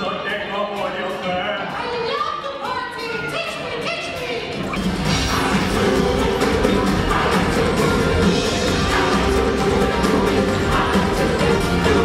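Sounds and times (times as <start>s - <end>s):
live band playing pop music: 3.1s - 12.0s.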